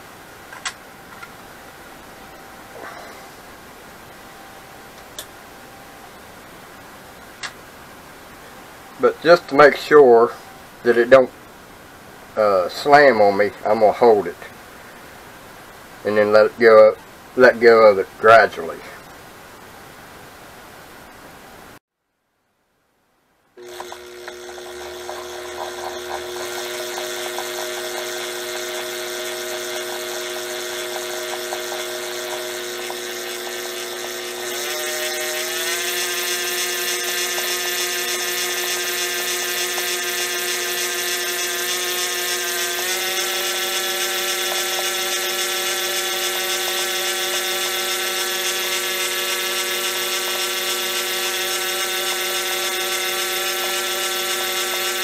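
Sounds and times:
electric motor whine and hum: 0:23.6 - 0:55.0.

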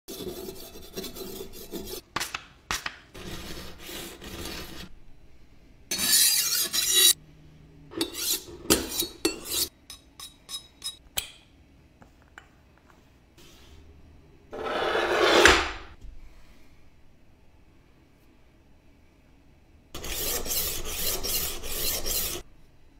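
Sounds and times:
knife scraping on sharpening stone: 0:05.9 - 0:07.2, 0:08.0 - 0:11.0, 0:20.0 - 0:22.4.

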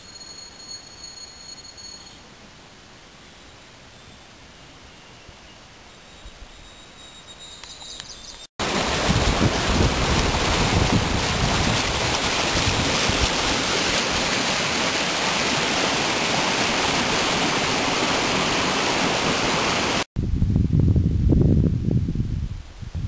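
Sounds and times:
whitewater rushing over rocks: 0:08.6 - 0:20.0.

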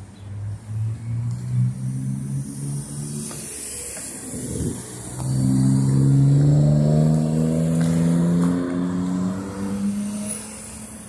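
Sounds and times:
vehicle engine accelerating past: 0:04.6 - 0:10.7.

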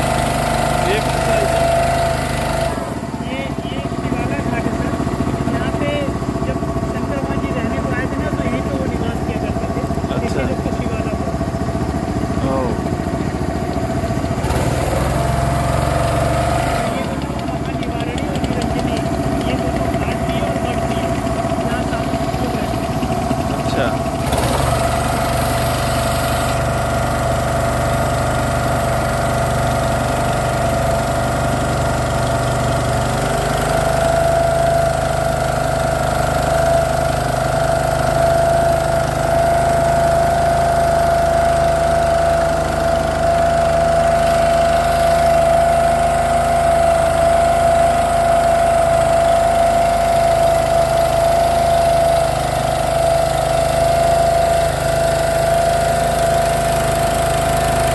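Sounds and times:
motorboat engine running: 0:00.0 - 0:57.9.

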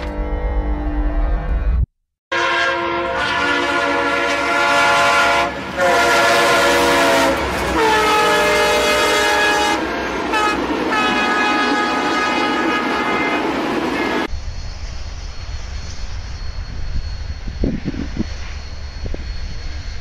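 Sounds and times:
locomotive air horn: 0:02.3 - 0:13.5
train rumble: 0:03.1 - 0:20.0.

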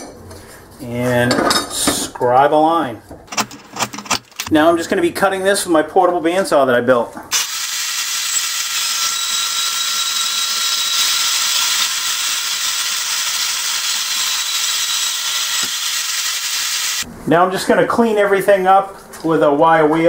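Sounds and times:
bandsaw cutting steel: 0:07.3 - 0:17.0
blade and motor whining: 0:07.4 - 0:17.0.

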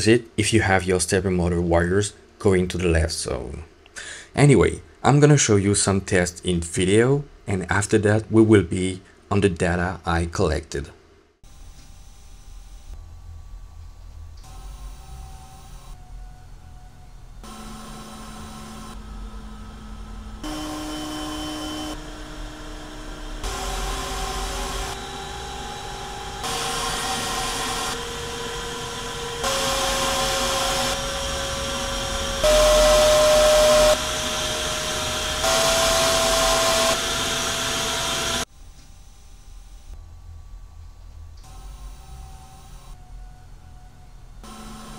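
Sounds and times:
blower fan whine over rushing air: 0:17.4 - 0:38.5.

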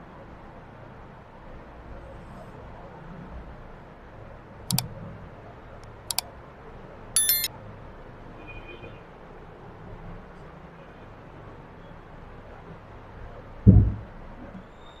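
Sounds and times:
bright bell ding: 0:07.2 - 0:07.5
mouse click: 0:07.2 - 0:07.5.

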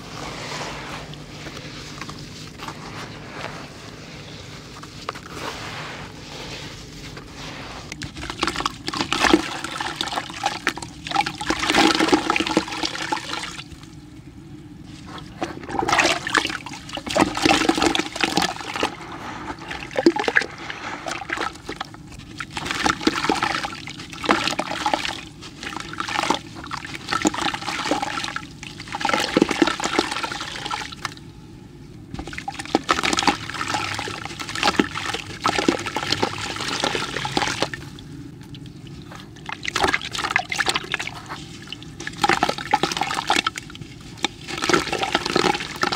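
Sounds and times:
muddy water sloshing in bucket: 0:07.8 - 0:13.9, 0:14.9 - 0:31.2, 0:32.1 - 0:45.9
hands squishing wet mud: 0:32.2 - 0:45.9.

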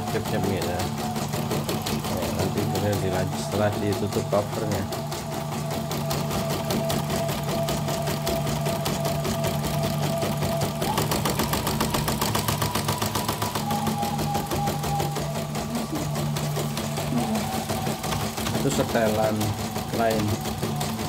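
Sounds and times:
motor whine: 0:00.0 - 0:21.0.

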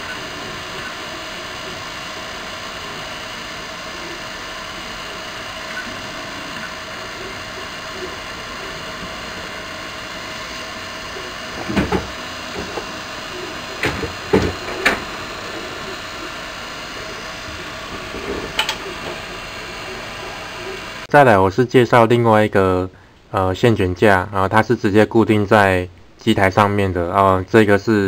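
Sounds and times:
printer fans and motors humming: 0:00.0 - 0:21.1.

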